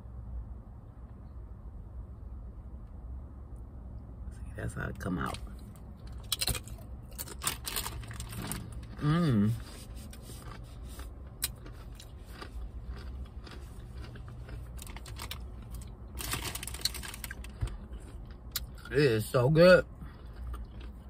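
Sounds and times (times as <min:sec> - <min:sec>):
person chewing crunchy chips: 0:05.3 - 0:21.0.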